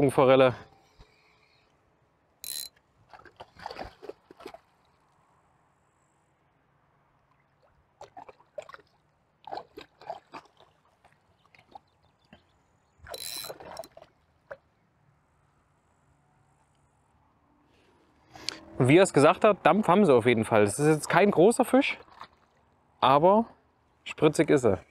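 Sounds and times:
spinning reel clicks and buzzes: 2.4s - 2.7s, 13.1s - 13.6s
fish splashing at surface: 3.1s - 4.9s, 8.0s - 12.0s, 13.0s - 14.6s.

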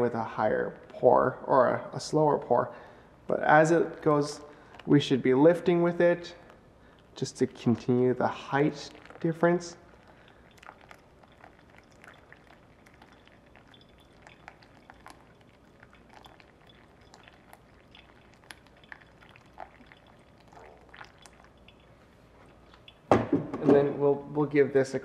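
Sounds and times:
thin water stream trickling: 3.3s - 23.1s.

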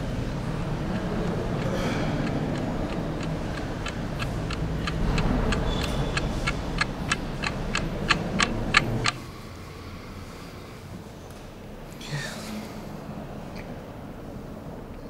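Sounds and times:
clock ticking: 0.0s - 9.2s.

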